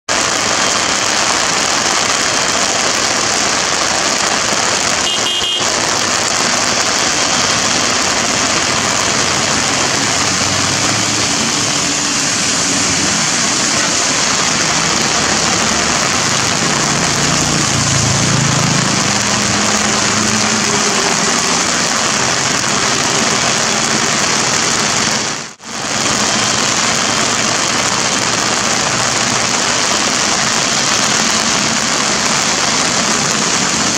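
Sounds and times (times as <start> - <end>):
heavy rain: 0.1 - 33.9.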